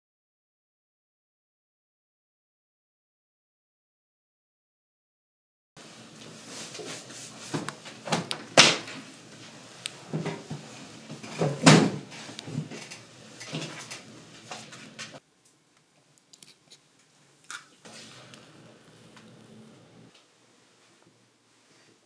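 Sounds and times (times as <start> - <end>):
furniture knocks and thumps: 10.1 - 12.8.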